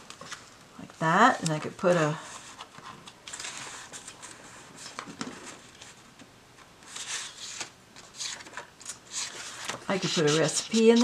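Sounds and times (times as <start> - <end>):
paper cards rustling and scraping: 1.5 - 6.0, 6.8 - 11.0.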